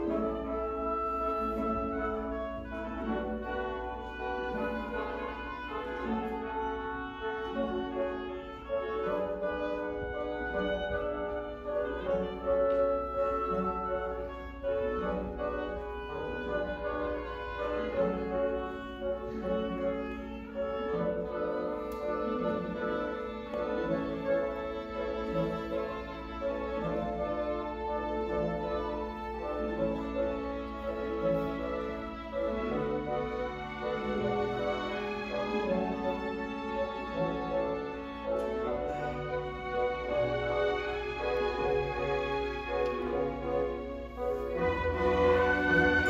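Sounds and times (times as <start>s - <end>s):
orchestra playing: 0.0s - 46.0s.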